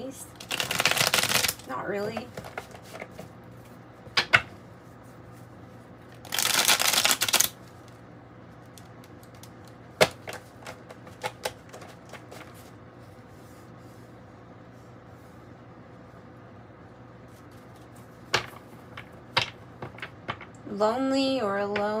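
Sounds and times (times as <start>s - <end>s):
cards riffle shuffling: 0.4s - 3.3s, 6.2s - 7.6s.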